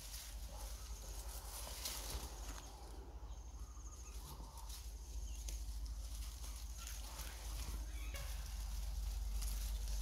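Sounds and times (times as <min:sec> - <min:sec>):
dry leaves rustling: 0:00.0 - 0:10.0.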